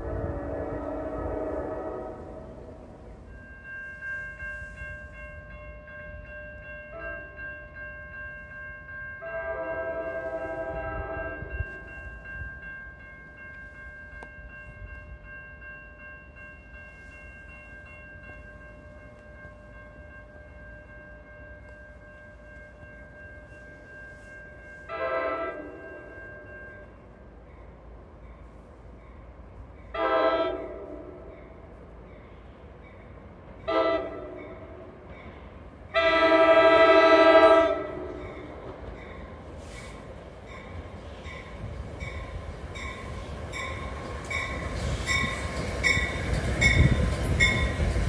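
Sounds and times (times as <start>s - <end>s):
train horn blasts: 0.0s - 3.1s, 9.2s - 12.0s, 24.9s - 26.2s, 29.9s - 31.4s, 33.7s - 35.0s, 35.9s - 38.6s
low train rumble: 0.0s - 48.0s.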